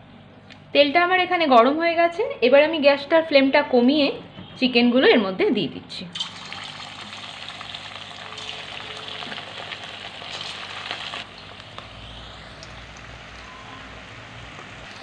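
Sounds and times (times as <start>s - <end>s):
chicken deep-frying in sizzling oil: 6.2s - 15.0s.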